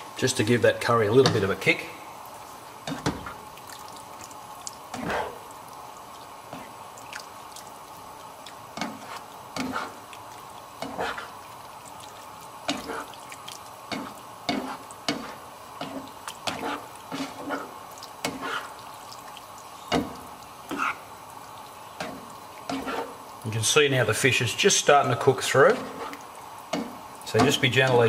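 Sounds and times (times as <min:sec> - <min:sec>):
faint steady hum: 0:00.0 - 0:28.0
spatula stirring thick curry: 0:08.7 - 0:19.0, 0:21.9 - 0:23.3, 0:25.3 - 0:28.0.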